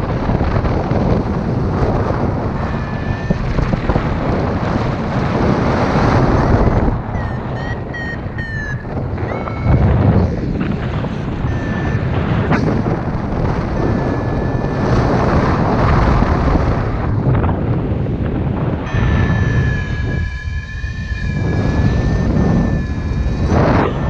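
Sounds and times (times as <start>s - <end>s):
wind buffeting microphone: 0.0s - 24.0s
high electronic tone: 2.4s - 3.9s, 6.6s - 16.0s, 18.8s - 24.0s.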